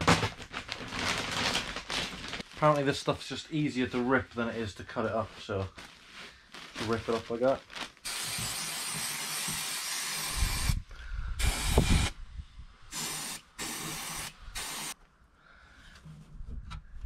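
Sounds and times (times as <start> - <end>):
aerosol spray can hissing: 8.1 - 10.8, 11.4 - 12.1, 12.9 - 15.0.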